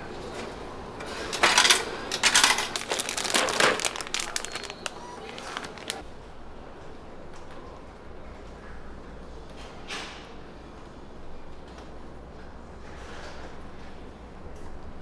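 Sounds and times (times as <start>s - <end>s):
vending machine flap clattering: 1.3s - 4.7s.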